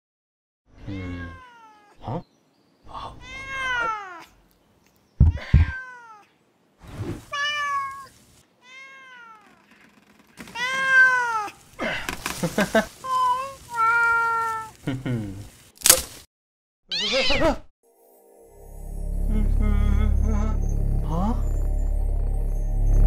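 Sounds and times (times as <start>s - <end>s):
cat meowing: 0.8s - 2.0s, 3.2s - 4.3s, 5.2s - 6.3s, 7.3s - 9.7s, 10.5s - 11.6s, 16.9s - 17.6s.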